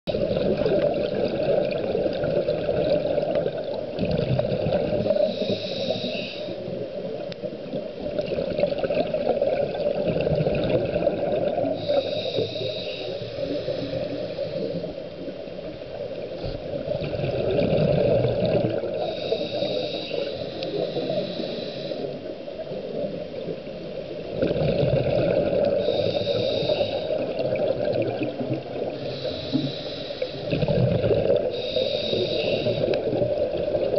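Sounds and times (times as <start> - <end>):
gurgling exhaled bubbles: 0.1 - 6.0, 7.7 - 15.0, 15.6 - 33.9
hissing regulator inhalation: 5.2 - 6.6, 11.8 - 15.0, 19.0 - 22.2, 25.8 - 27.3, 29.0 - 30.6, 31.5 - 33.2.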